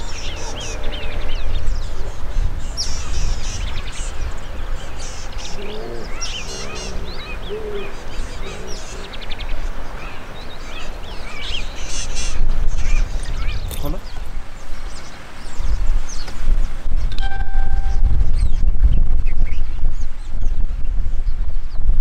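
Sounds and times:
low-pitched bird calls: 0:00.0 - 0:14.2
birds chirping and whistling: 0:00.0 - 0:14.3.

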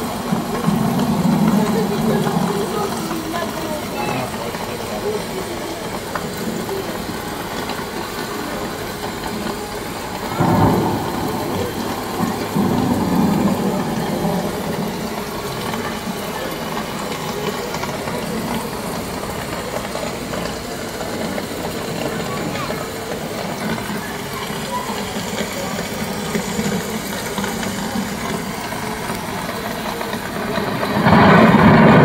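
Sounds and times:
rain hiss: 0:00.0 - 0:32.0
loud burst: 0:10.0 - 0:20.4, 0:23.5 - 0:32.0.

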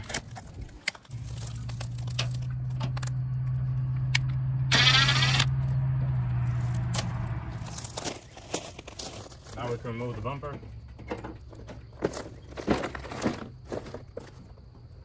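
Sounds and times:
rattling burst: 0:04.7 - 0:05.5.

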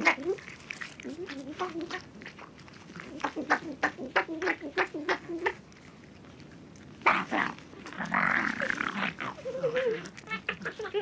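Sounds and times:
foxes snarling and growling: 0:00.0 - 0:11.0
fox yelping: 0:08.5 - 0:11.0.

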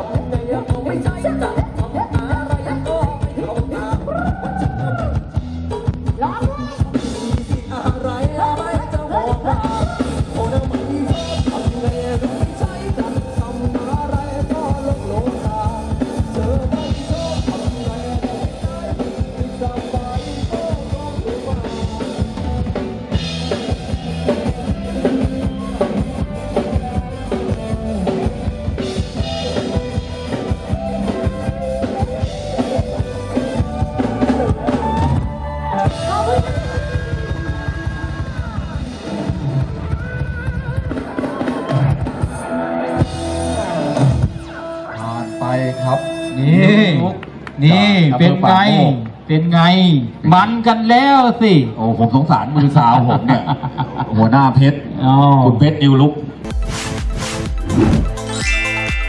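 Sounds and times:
person singing: 0:00.0 - 0:05.4, 0:06.2 - 0:22.9
live band music over loudspeakers: 0:00.0 - 0:53.7, 0:54.3 - 0:59.0.

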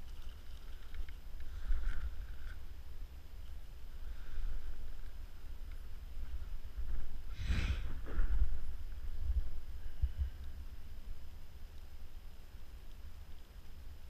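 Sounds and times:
wind rumble on microphone: 0:04.2 - 0:11.6.

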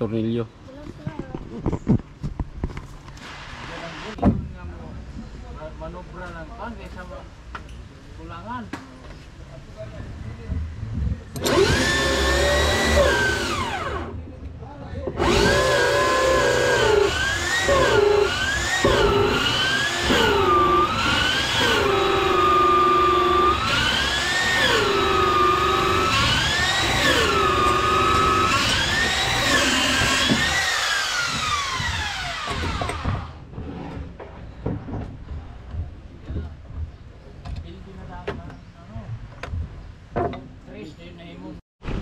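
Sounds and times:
electric drill boring into wood: 0:11.4 - 0:14.1, 0:15.2 - 0:33.4.

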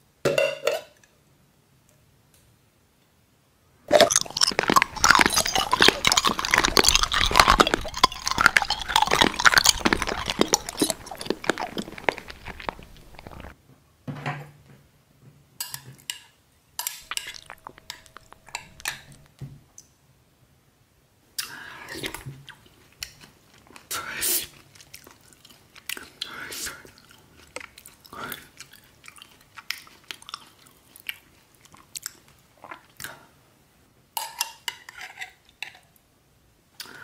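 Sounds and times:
spoon clinking against glass jar: 0:03.9 - 0:13.5
spoon stirring thick sauce: 0:03.9 - 0:13.5, 0:17.0 - 0:19.3.

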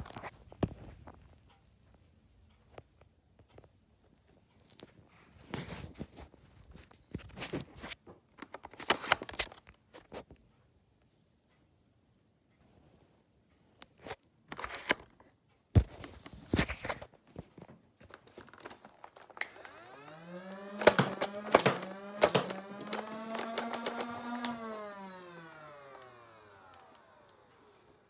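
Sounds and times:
sharp clicks: 0:18.0 - 0:28.0
electric motor spinning: 0:19.3 - 0:28.0
hard plastic clicks and knocks: 0:20.6 - 0:24.7.

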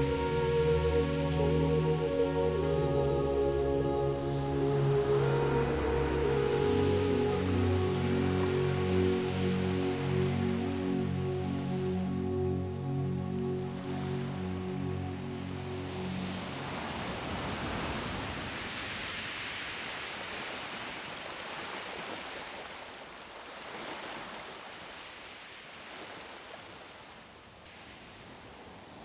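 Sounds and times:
background music: 0:00.0 - 0:17.2
soft rushing surf-like noise: 0:00.0 - 0:29.0.

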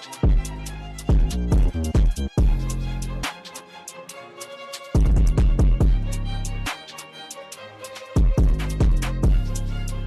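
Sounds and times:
background music: 0:00.0 - 0:10.0
heavy kick drum: 0:00.2 - 0:02.9, 0:05.0 - 0:06.1, 0:08.2 - 0:09.5.

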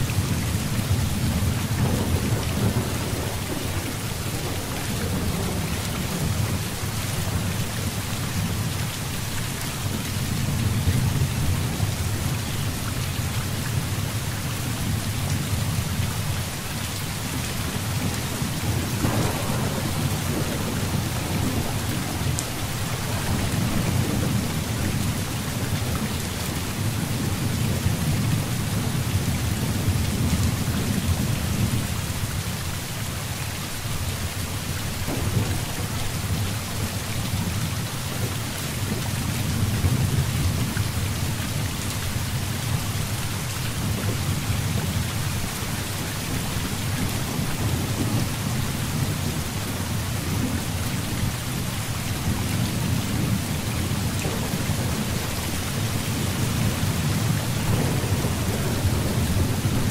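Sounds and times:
thunder rumbling: 0:00.0 - 0:08.6, 0:17.2 - 0:31.9, 0:35.0 - 0:41.7, 0:52.2 - 0:59.9
heavy rain pouring: 0:00.0 - 0:59.9
crackle of thunder: 0:00.1 - 0:08.6, 0:17.2 - 0:32.5, 0:35.0 - 0:41.7, 0:46.2 - 0:51.3, 0:52.2 - 0:59.9.

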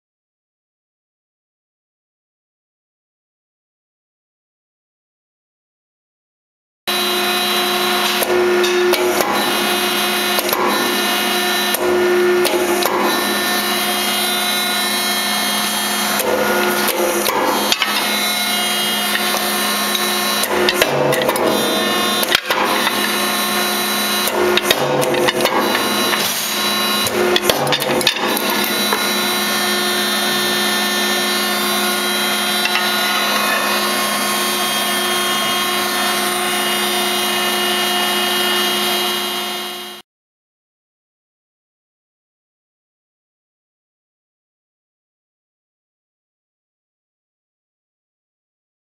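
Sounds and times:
hydraulic pump motor hum: 0:06.9 - 0:40.0.

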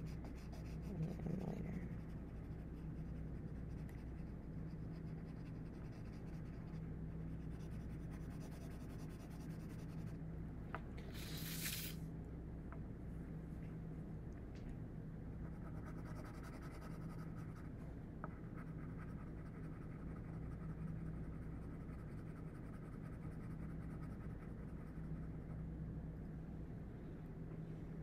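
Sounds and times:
pencil scratching on paper: 0:00.0 - 0:10.1, 0:15.4 - 0:17.7, 0:18.3 - 0:25.4.

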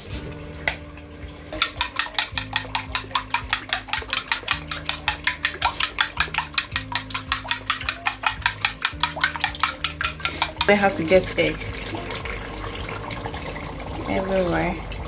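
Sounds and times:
spoon clinking against bowl: 0:01.5 - 0:11.0.

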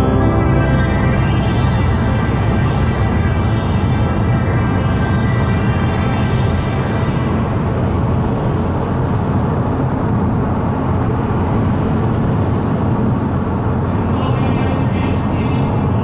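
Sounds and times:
music with rising tones: 0:00.0 - 0:09.4.

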